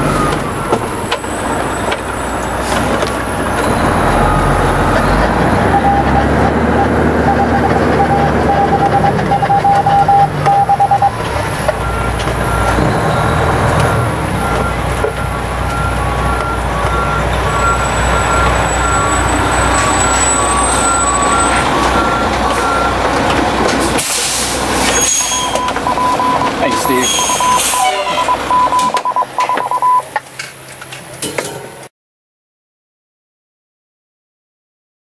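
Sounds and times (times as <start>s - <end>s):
truck engine running low: 0.0s - 31.2s
backup alarm beeps: 5.7s - 11.2s, 14.4s - 23.0s, 25.3s - 30.1s.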